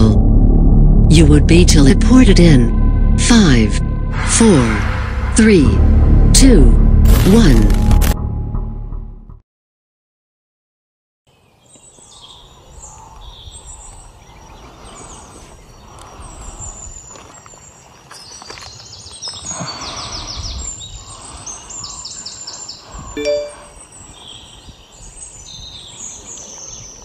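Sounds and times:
low rumble: 0:00.0 - 0:09.4
birds chirping and calling: 0:11.3 - 0:27.0
bird rapid high notes: 0:23.2 - 0:23.8.

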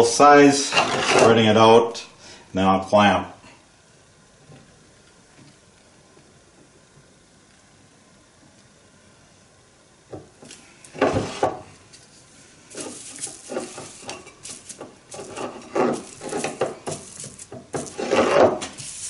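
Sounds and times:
foam brush scrubbing glue on wood: 0:12.5 - 0:19.0.

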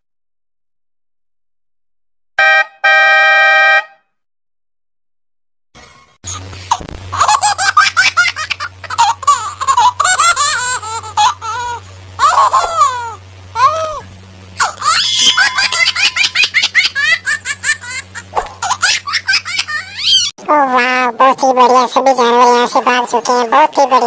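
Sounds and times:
child giggling: 0:07.2 - 0:14.0, 0:14.6 - 0:20.3.

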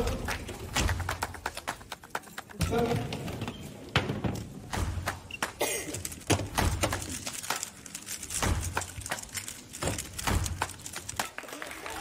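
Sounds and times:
plastic puzzle cubes clicking: 0:05.3 - 0:11.4.

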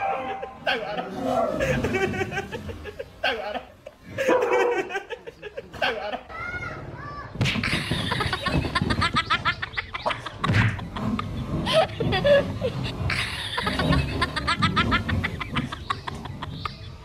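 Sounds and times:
person laughing: 0:00.1 - 0:06.2.

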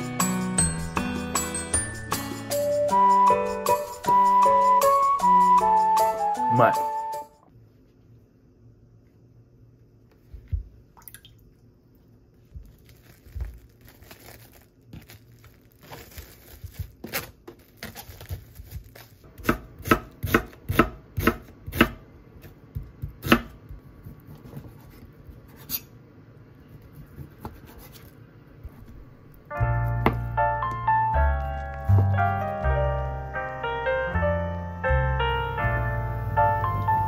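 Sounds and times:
knife chopping on wooden board: 0:19.3 - 0:22.0, 0:22.8 - 0:24.4.

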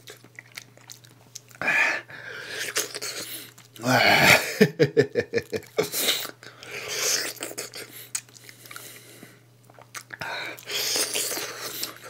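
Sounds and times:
smacking mouth noises: 0:05.3 - 0:08.9, 0:09.6 - 0:12.0
slurping: 0:09.9 - 0:12.0.

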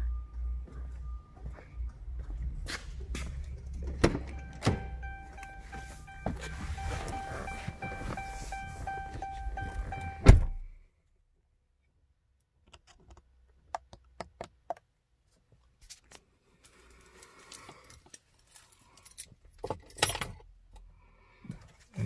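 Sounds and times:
car warning chime: 0:00.0 - 0:02.2, 0:03.7 - 0:10.7.

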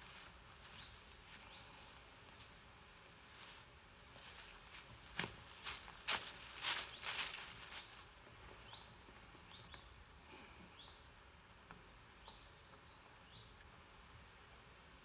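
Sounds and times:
rustling: 0:03.2 - 0:08.1.

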